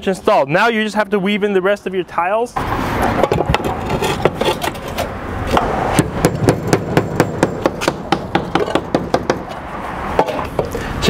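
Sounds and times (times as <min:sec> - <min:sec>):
hammer striking roof tile: 0:03.2 - 0:04.8, 0:05.5 - 0:09.5.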